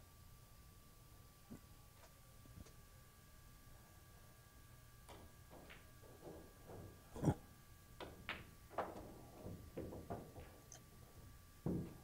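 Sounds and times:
pool balls clacking: 0:05.1 - 0:07.3, 0:08.0 - 0:10.8.

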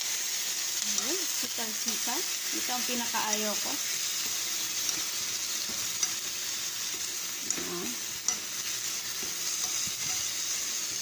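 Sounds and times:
food sizzling in oil: 0:00.0 - 0:11.0
utensil tapping pan: 0:02.9 - 0:11.0.

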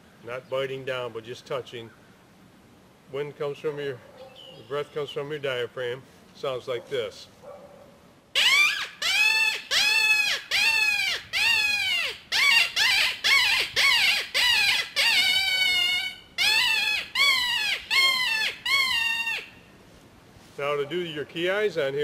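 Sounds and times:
predator call rabbit distress cries: 0:08.4 - 0:19.6.

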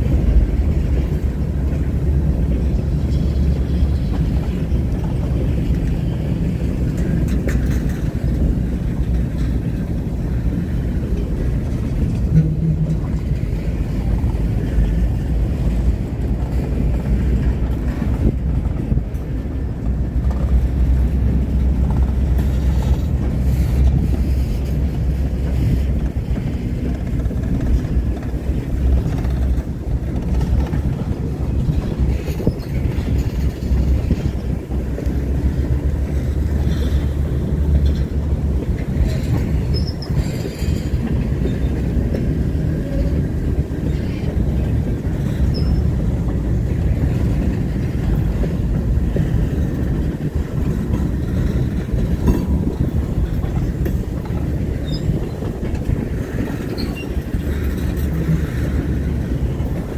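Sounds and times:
steel wheels rumbling on rail: 0:00.0 - 0:59.9
high-pitched wheel squeals: 0:45.5 - 0:45.9.

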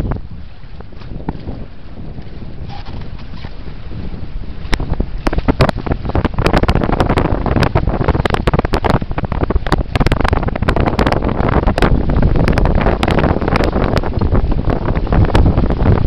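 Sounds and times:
water rushing past hulls: 0:00.0 - 0:16.0
wind buffeting microphone: 0:00.0 - 0:16.0.

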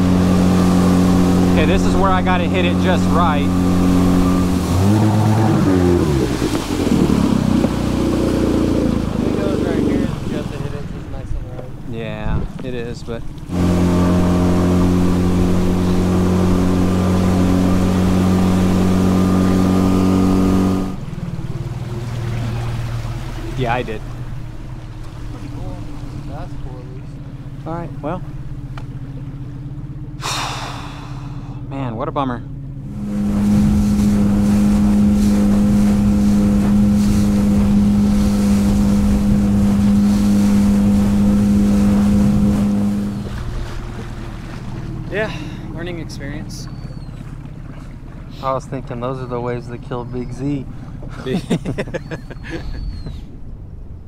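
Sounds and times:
wind and water hiss: 0:00.0 - 0:17.0, 0:32.9 - 0:46.6
outboard motor running: 0:00.0 - 0:54.0.

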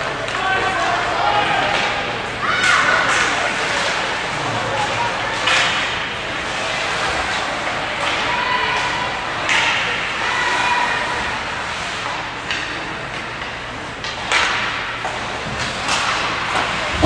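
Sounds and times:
faint voices: 0:00.0 - 0:17.0
ice rink arena noise: 0:00.0 - 0:17.0
hockey sticks and skates knocking: 0:02.6 - 0:04.2, 0:04.8 - 0:06.3, 0:07.1 - 0:10.2, 0:11.6 - 0:17.0.

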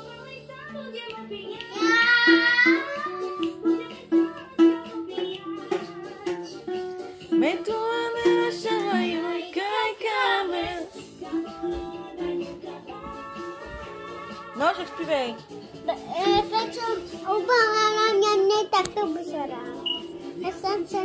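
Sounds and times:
child singing: 0:00.0 - 0:06.8, 0:07.4 - 0:13.6, 0:16.0 - 0:21.0
plucked ukulele: 0:01.8 - 0:09.4.

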